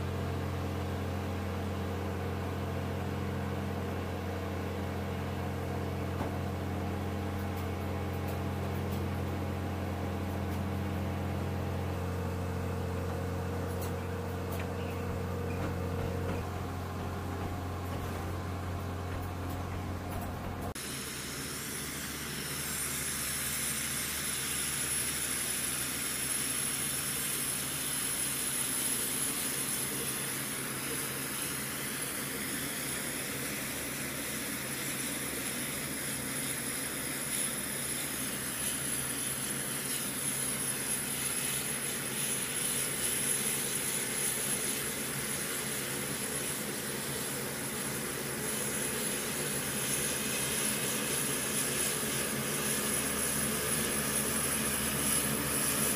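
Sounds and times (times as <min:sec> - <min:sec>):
propellers droning: 0:12.6 - 0:23.1.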